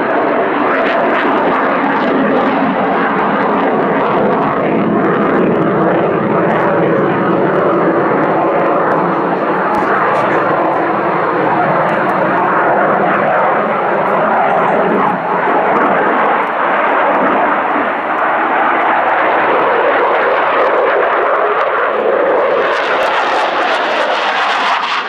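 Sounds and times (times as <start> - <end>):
fighter jet roaring: 0.0 - 25.0.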